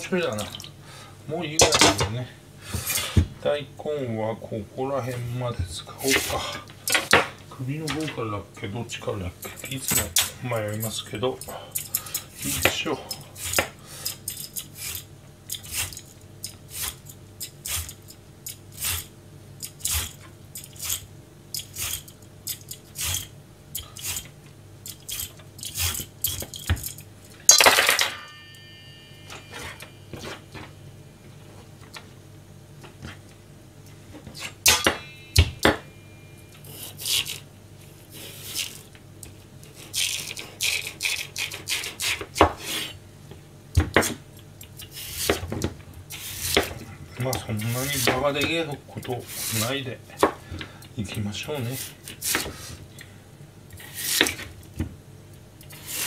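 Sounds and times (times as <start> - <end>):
knife scraping radish skin: 11.8 - 26.9, 36.6 - 37.4, 38.1 - 38.9, 39.6 - 43.0, 44.8 - 45.4, 46.1 - 46.8, 47.6 - 48.6, 49.2 - 49.8, 51.6 - 52.7, 53.8 - 54.4, 55.7 - 56.0
ringing metal clatter: 27.5 - 30.7.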